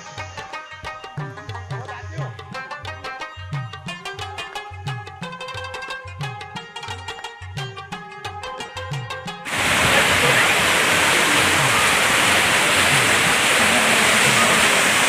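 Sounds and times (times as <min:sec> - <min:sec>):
waterfall rushing: 0:09.5 - 0:15.0.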